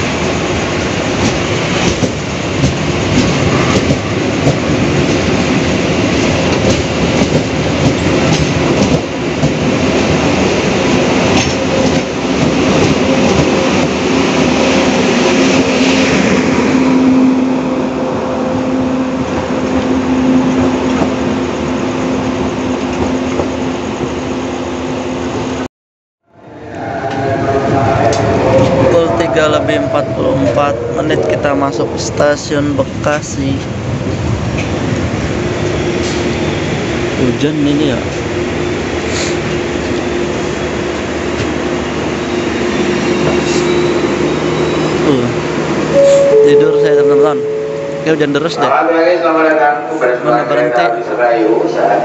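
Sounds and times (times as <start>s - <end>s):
train wheels rushing on rail: 0.0s - 25.6s, 26.7s - 46.4s
clacks over rail joints: 6.5s - 9.6s
low hum: 26.3s - 34.2s.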